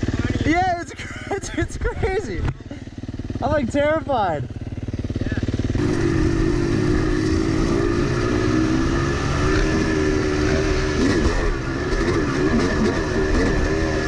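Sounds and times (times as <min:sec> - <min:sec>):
two-stroke dirt bike engine running: 0:00.0 - 0:14.0.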